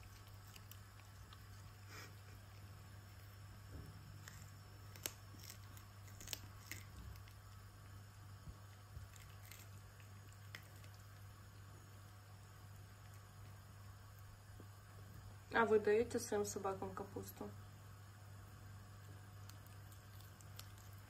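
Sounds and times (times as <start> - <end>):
dog chewing leaf wet crunches: 0.0 - 3.4, 4.1 - 11.3, 19.4 - 21.0.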